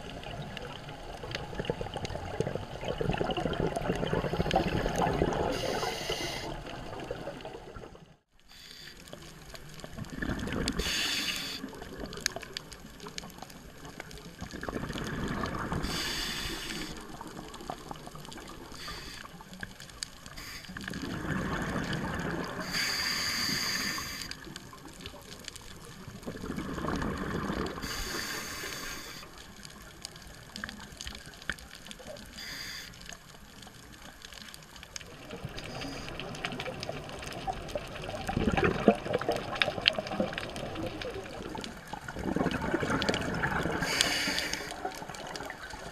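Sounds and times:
exhaled bubbles rushing: 0.0s - 8.1s, 9.9s - 10.9s, 13.9s - 16.0s, 20.8s - 22.7s, 24.8s - 27.8s, 35.1s - 44.1s
regulator hiss on inhale: 5.5s - 6.7s, 8.4s - 9.4s, 10.8s - 11.8s, 15.8s - 17.4s, 18.6s - 21.0s, 22.6s - 24.6s, 27.8s - 29.6s, 32.2s - 33.4s, 35.6s - 36.5s, 43.7s - 45.1s.

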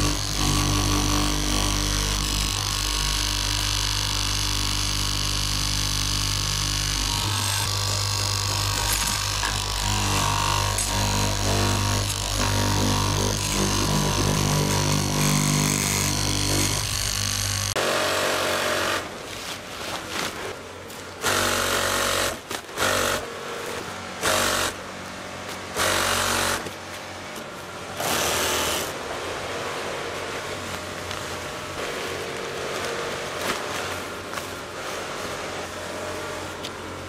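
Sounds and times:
sewing machine stitching in bursts: 0.0s - 17.7s
electric fabric cutter running: 0.0s - 19.2s.

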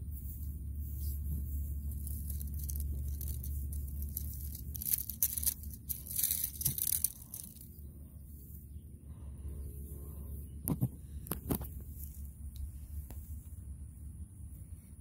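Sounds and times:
dry leaves rustling and crackling: 0.0s - 7.8s
steady low hum: 0.0s - 15.0s.

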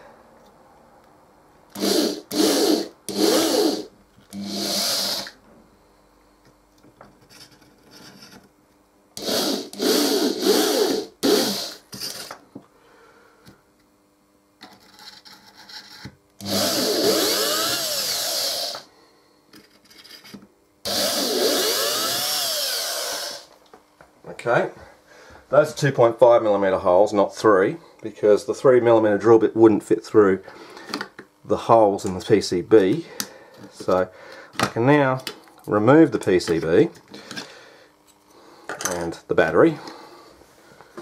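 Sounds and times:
electric drill whining: 1.7s - 5.4s, 9.2s - 12.4s, 16.4s - 18.9s, 20.8s - 23.6s.

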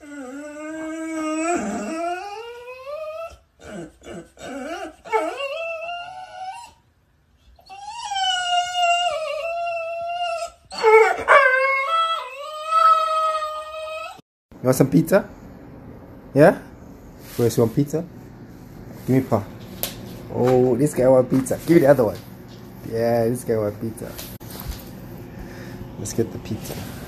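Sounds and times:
dog howling: 0.0s - 6.8s, 7.6s - 14.2s.

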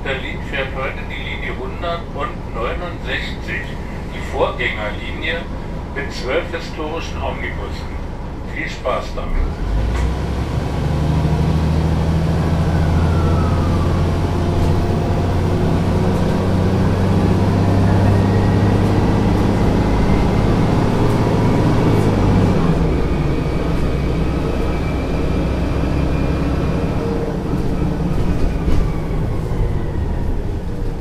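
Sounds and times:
bus engine running with whine: 0.0s - 31.0s.

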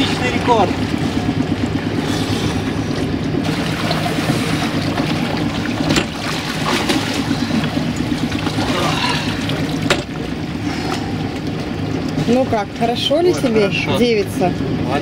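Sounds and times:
water splashing and rushing: 0.0s - 14.8s
yacht engine hum: 0.0s - 15.0s
sharp splash or knock: 5.8s - 7.2s.

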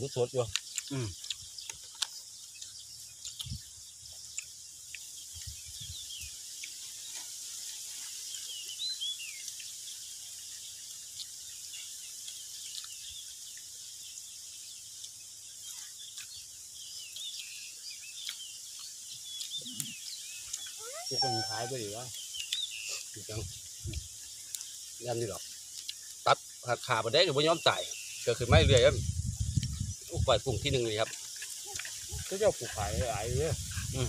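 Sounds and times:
insects chorus: 0.0s - 34.0s
bird chirps: 8.2s - 34.0s.

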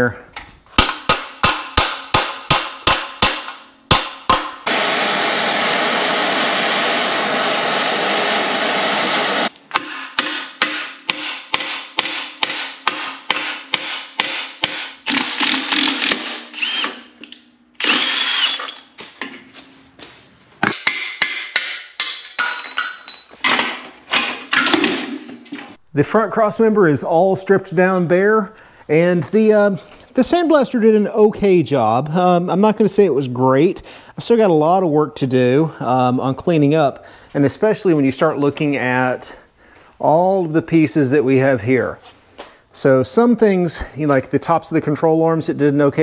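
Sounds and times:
hammer striking steel: 0.8s - 4.7s, 9.7s - 15.0s, 20.6s - 23.3s
harsh power tool noise: 4.7s - 9.5s, 15.1s - 18.7s.

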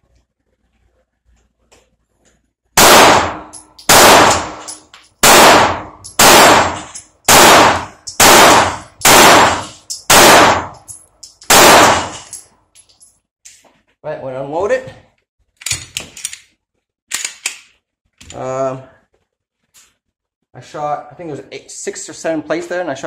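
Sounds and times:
pistol shots: 2.8s - 10.8s, 11.5s - 12.2s.

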